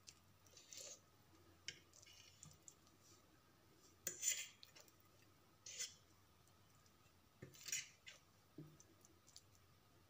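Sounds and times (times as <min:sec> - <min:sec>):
fork scraping paper plate: 0:00.5 - 0:01.0, 0:04.0 - 0:04.7, 0:05.6 - 0:06.0, 0:07.4 - 0:08.2.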